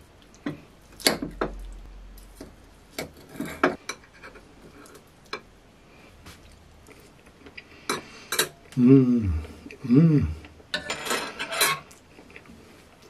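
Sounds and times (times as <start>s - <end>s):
cutlery clinking on a plate: 10.8s - 11.9s.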